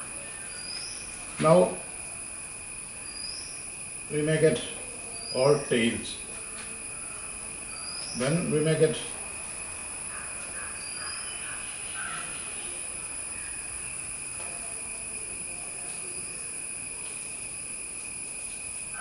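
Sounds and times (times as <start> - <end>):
high-pitched background drone: 0.0 - 19.0.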